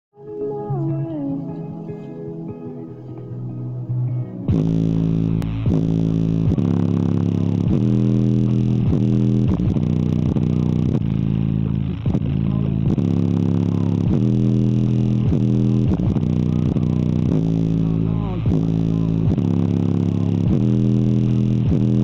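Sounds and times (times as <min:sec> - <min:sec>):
loud bass-heavy music: 0:02.9 - 0:22.0.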